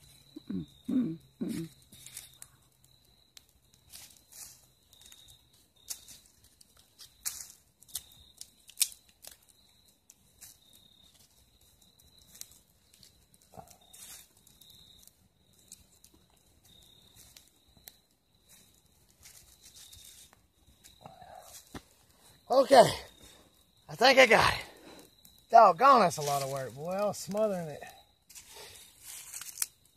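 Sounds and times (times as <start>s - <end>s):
leaves and twigs crackling: 1.4s - 29.9s
sharp snaps: 7.2s - 9.4s.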